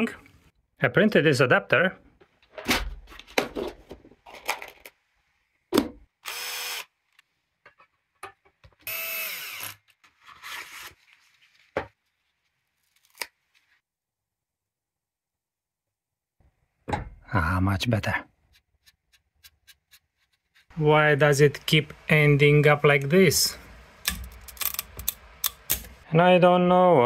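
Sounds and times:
power drill running: 6.2 - 6.9, 8.8 - 9.8.

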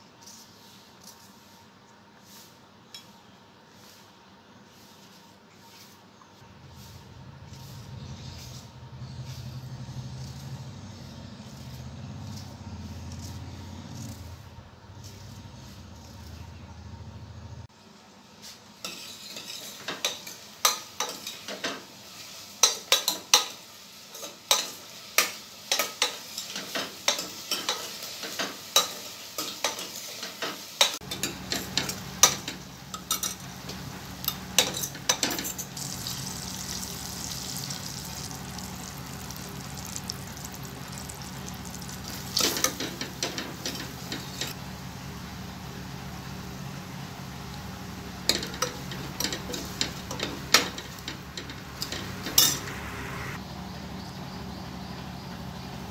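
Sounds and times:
onions sizzling in oil: 18.7 - 54.6
steel spoon scraping a pot: 31.0 - 38.3, 48.3 - 52.8.

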